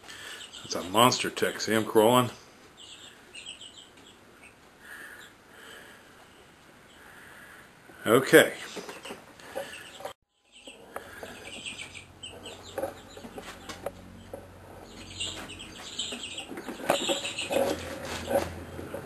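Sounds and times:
bird clucking and chirping: 8.8 - 19.0.

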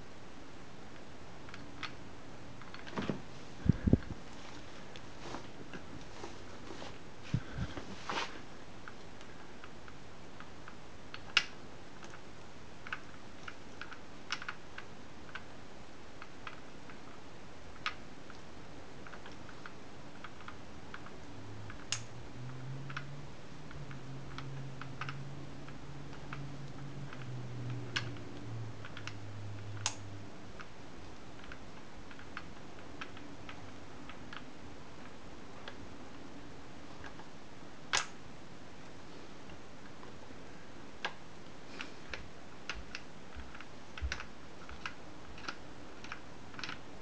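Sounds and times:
low whir of spinning shaft: 2.6 - 9.0, 21.0 - 30.2.

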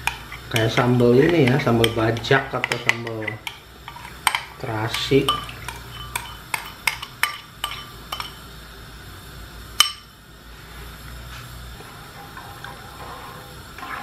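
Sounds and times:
metal spoon clinking on ceramic bowl: 0.0 - 8.4.

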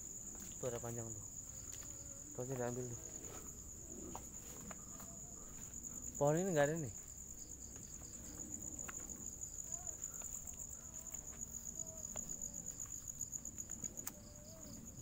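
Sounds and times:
crickets trilling: 0.0 - 15.0.

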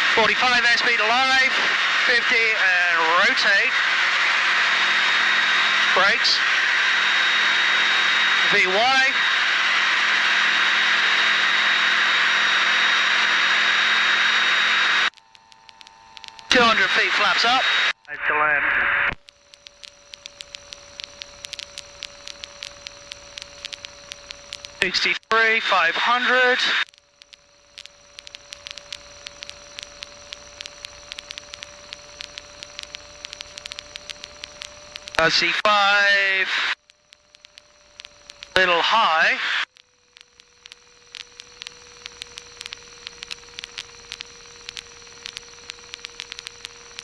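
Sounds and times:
crackling static: 0.0 - 47.0
faint clicks: 15.0 - 16.6, 19.1 - 25.4, 26.7 - 35.7, 36.5 - 38.7, 39.6 - 47.0.

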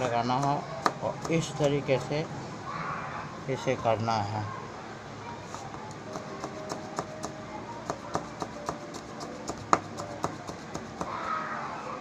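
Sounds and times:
knife chopping on plastic board: 0.0 - 1.7, 5.5 - 11.2.

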